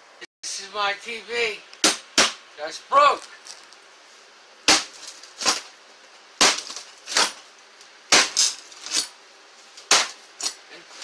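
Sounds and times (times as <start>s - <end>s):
knife stabbing cracked screen: 6.4s - 7.4s.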